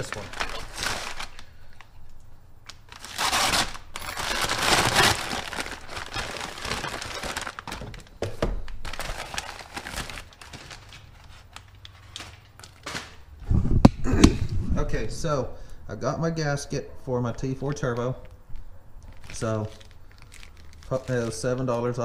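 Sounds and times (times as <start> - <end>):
paper tearing and crumpling: 0.0 - 1.6, 2.8 - 7.9, 8.8 - 13.3, 19.2 - 22.0
packaging rustling: 0.0 - 2.0, 2.6 - 13.4, 17.8 - 22.0.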